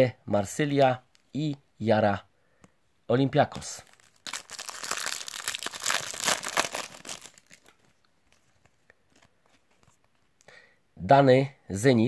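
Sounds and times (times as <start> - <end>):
card packet crinkling and tearing: 3.7 - 10.0.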